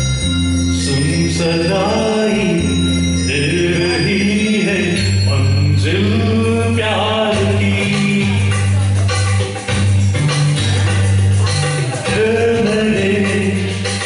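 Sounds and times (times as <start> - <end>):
backing track with bass line: 0.0 - 14.0
man singing into microphone: 0.8 - 9.1, 11.5 - 14.0.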